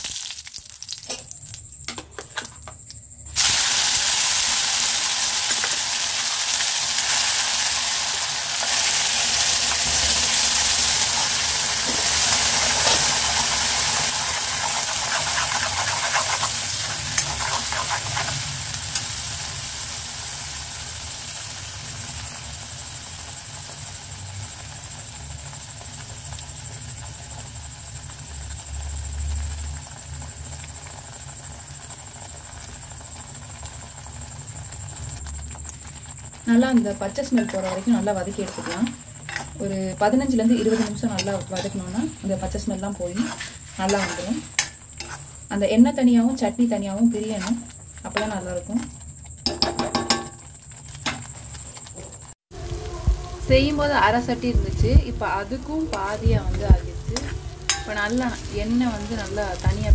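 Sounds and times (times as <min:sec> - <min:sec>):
paste sizzling in hot oil: 0:00.0 - 0:01.8, 0:03.0 - 0:59.9
seeds crackling in oil: 0:00.0 - 0:01.8, 0:02.8 - 0:59.9
metal spatula stirring: 0:08.9 - 0:19.1, 0:37.0 - 0:42.2, 0:43.0 - 0:45.4, 0:55.9 - 0:59.2.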